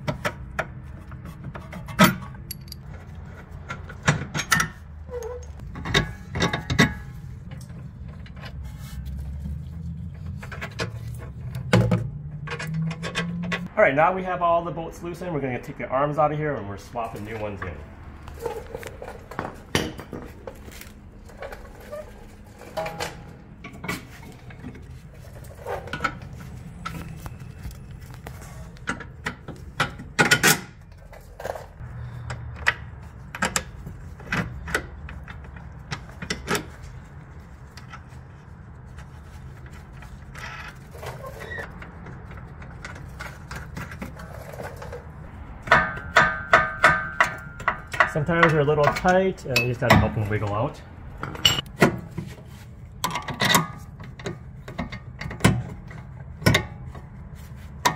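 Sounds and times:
metal tools and parts clinking: 1.5 - 9.0, 18.4 - 38.2, 39.0 - 51.8.

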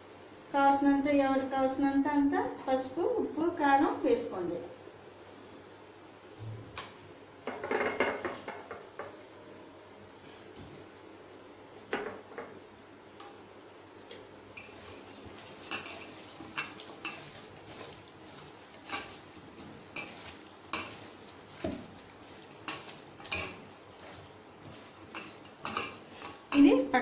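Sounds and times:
hand mixing chicken in a bowl: 14.5 - 26.8
metal bowl clinking: 14.5 - 26.9.

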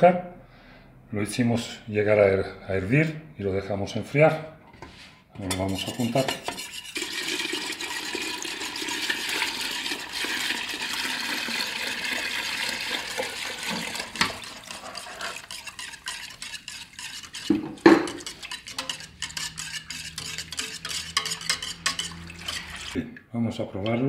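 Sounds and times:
whisk stirring and clicking: 5.4 - 23.0
syrup pouring into liquid: 6.4 - 23.0.

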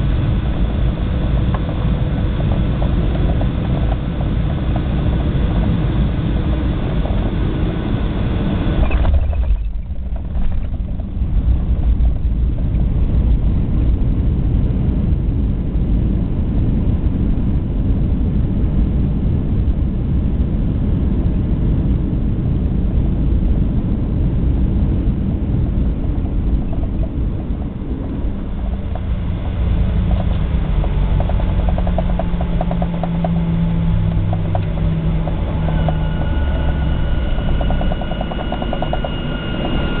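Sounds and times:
fast rattle: 0.0 - 7.8, 8.8 - 12.8, 26.0 - 40.0
airliner engines and wheels rumbling: 0.0 - 40.0
high whine: 0.0 - 40.0
steady engine hum: 0.0 - 40.0.

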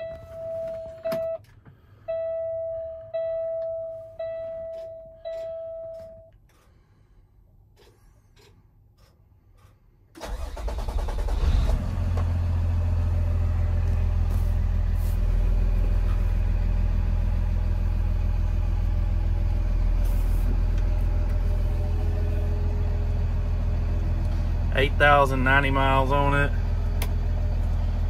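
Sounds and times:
diesel engine cranking and idling: 3.4 - 28.0.

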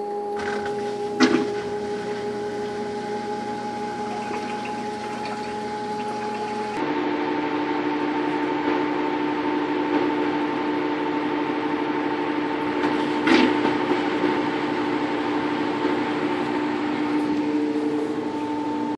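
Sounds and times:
washing machine spinning: 0.0 - 6.8, 12.5 - 18.9.

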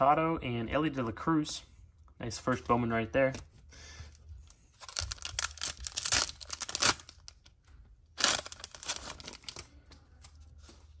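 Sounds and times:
foil wrapper tearing and crinkling: 4.8 - 7.4, 8.2 - 9.6.

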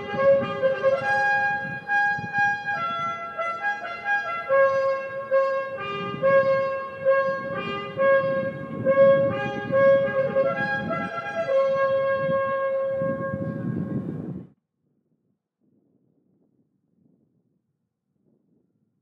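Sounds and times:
slow brass music: 0.0 - 14.1.

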